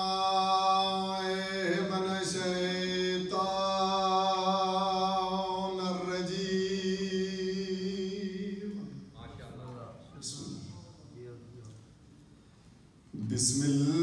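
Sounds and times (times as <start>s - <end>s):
devotional chanting: 0.0s - 11.0s, 13.1s - 14.0s.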